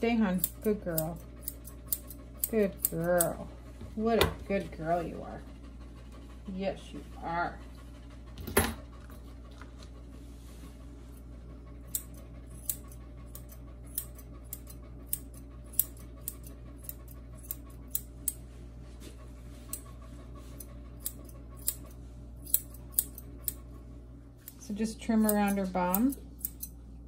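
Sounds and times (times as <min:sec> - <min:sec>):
shears snipping hair: 0:00.0 - 0:05.2, 0:11.9 - 0:18.4, 0:19.0 - 0:23.8, 0:24.4 - 0:26.8
steady low hum: 0:00.0 - 0:27.0.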